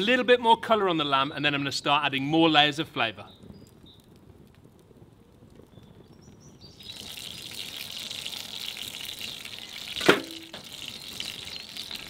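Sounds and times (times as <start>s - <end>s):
wood fire crackling: 0.0s - 12.0s
birds chirping: 3.2s - 4.1s, 5.6s - 7.6s, 10.7s - 12.0s
log knocking metal fire pit: 9.9s - 12.0s.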